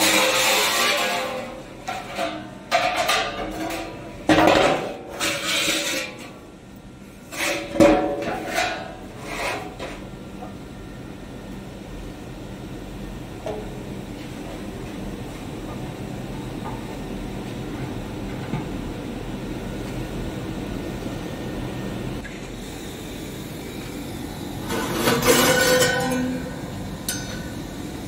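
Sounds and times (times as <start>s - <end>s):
metal knocking and scraping: 0.0s - 6.4s, 7.3s - 10.1s, 24.7s - 26.5s.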